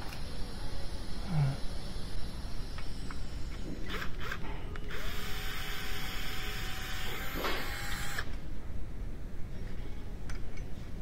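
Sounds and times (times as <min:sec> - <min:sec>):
cordless drill whining: 0:04.9 - 0:08.2.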